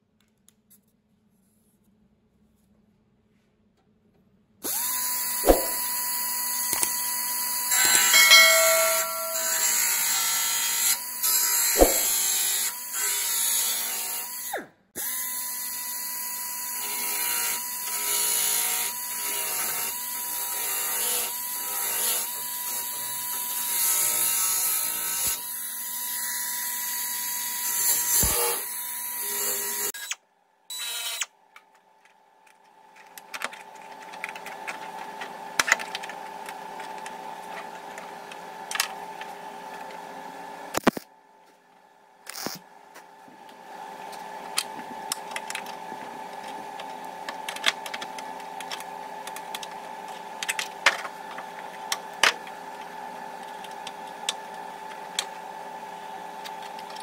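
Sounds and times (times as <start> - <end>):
power tool whining on steel: 4.6 - 31.3.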